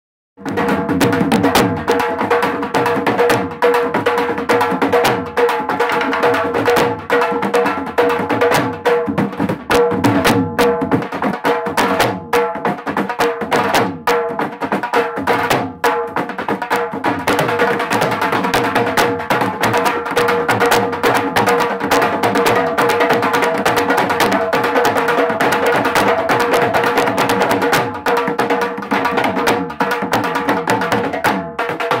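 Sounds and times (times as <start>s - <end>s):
dhol drums playing fast rhythm: 0.4s - 32.0s.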